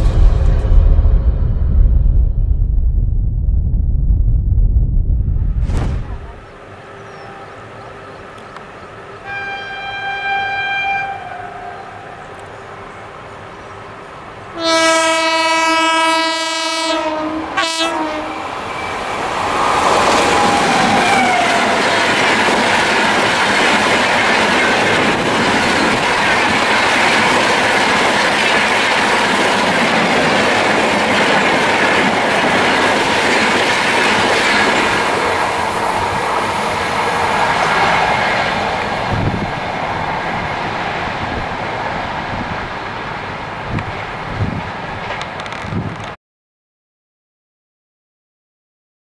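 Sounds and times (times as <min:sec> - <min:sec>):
low thumps: 0:00.0 - 0:06.4
train wheels clattering on rails: 0:19.9 - 0:39.7.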